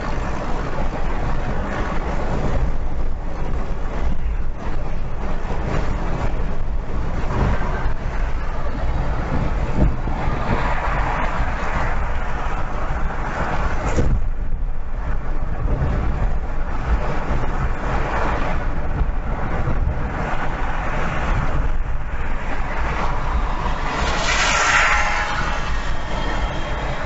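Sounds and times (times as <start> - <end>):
tyres and engine rumble: 0.0 - 27.0
road hiss: 22.4 - 27.0.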